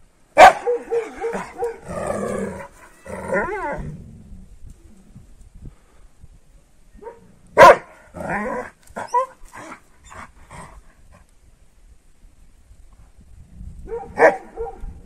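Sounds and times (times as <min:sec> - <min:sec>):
dog barking: 0:00.4 - 0:01.9, 0:07.0 - 0:08.0, 0:13.9 - 0:14.9.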